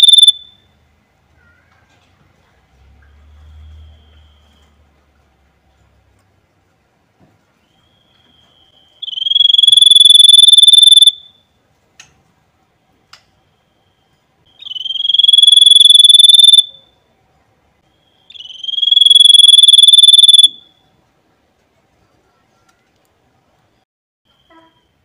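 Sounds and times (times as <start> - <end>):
bird whistling long high notes: 0.0 - 0.3, 7.7 - 11.1, 14.5 - 16.6, 18.2 - 20.6.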